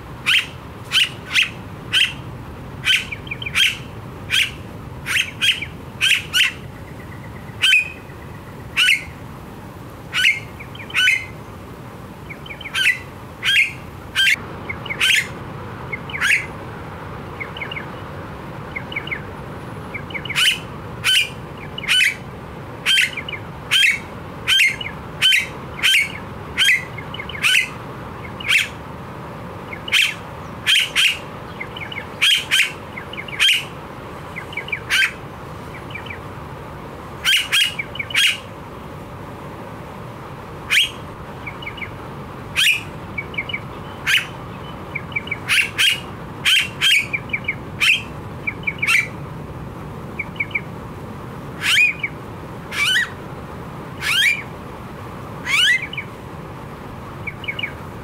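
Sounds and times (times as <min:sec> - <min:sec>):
bird calling: 0:00.2 - 0:09.2, 0:10.1 - 0:11.5, 0:12.2 - 0:16.6, 0:17.3 - 0:18.1, 0:18.7 - 0:28.8, 0:29.7 - 0:36.3, 0:37.2 - 0:38.5, 0:40.6 - 0:49.2, 0:50.2 - 0:50.7, 0:51.6 - 0:53.2, 0:54.0 - 0:54.5, 0:55.4 - 0:56.2, 0:57.2 - 0:57.8.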